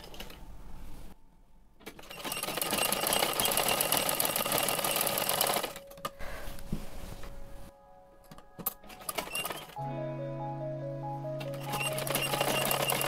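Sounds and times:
sewing machine stitching: 1.8s - 5.8s, 9.0s - 9.8s, 11.6s - 13.0s.

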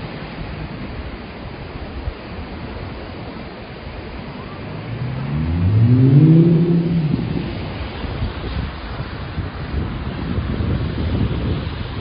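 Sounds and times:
surf: 0.0s - 12.0s
wind: 0.0s - 12.0s
vehicle engine accelerating: 4.4s - 8.5s.

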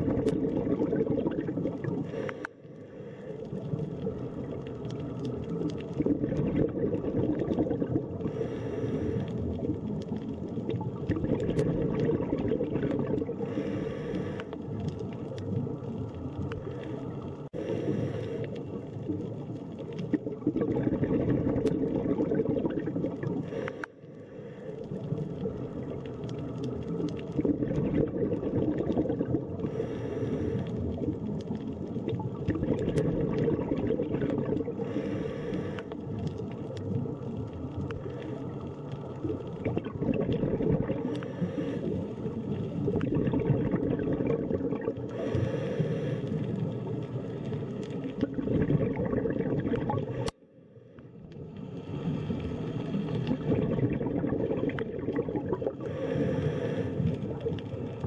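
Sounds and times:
low underwater noise: 0.0s - 58.0s
scuba breathing hiss: 2.0s - 3.5s, 8.2s - 9.5s, 13.4s - 14.6s, 16.6s - 18.8s, 23.4s - 24.9s, 29.6s - 31.0s, 34.8s - 36.0s, 41.0s - 42.8s, 45.1s - 48.0s, 55.8s - 57.4s.

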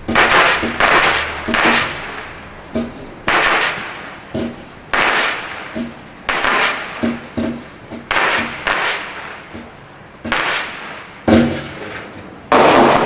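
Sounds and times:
firework blasts with hiss: 0.0s - 2.6s, 3.2s - 13.0s
small firework cracks: 0.1s - 2.4s, 3.3s - 4.2s, 4.9s - 7.0s, 8.1s - 9.5s, 10.3s - 13.0s.

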